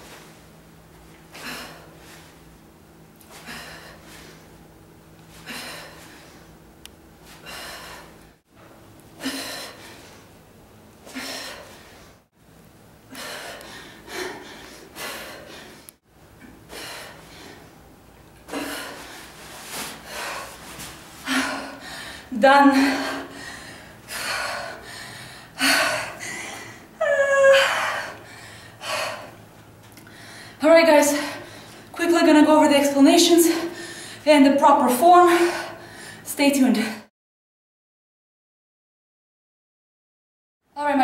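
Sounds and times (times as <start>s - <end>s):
woman breathing hard: 1.3s - 2.4s, 3.2s - 4.6s, 5.3s - 6.6s, 7.3s - 8.4s, 9.2s - 10.4s, 11.0s - 12.3s, 13.1s - 31.9s, 33.4s - 34.3s, 35.3s - 36.3s.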